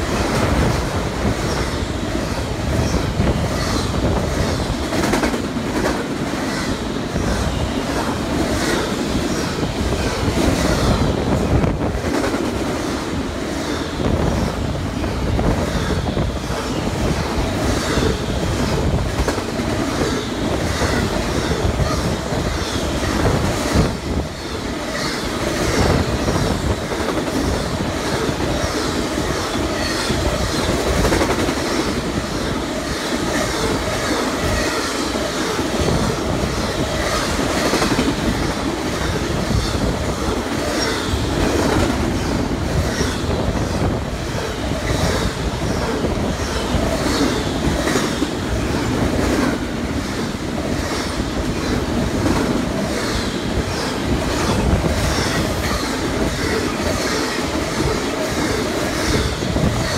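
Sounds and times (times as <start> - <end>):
freight train rumble: 0.0 - 59.9
train wheels clacking over rail joints: 2.3 - 11.2.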